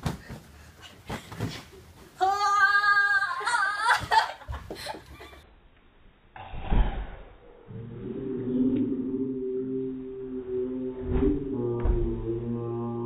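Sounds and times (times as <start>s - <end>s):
girl crying out: 2.2s - 4.3s.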